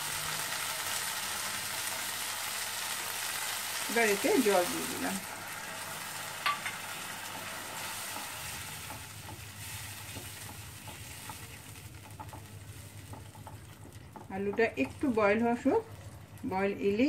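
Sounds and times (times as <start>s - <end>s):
curry sizzling in a pan: 0.0s - 17.0s
spatula tapping a pan: 6.4s - 6.8s, 8.0s - 15.2s.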